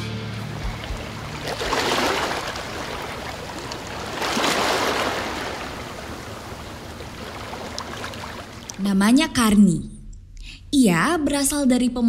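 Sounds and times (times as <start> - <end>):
water lapping in a harbour: 0.4 - 9.0.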